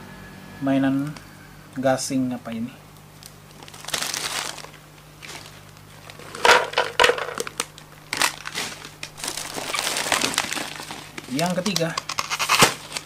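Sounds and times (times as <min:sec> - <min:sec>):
plastic snack packet crinkling: 0:03.2 - 0:13.0.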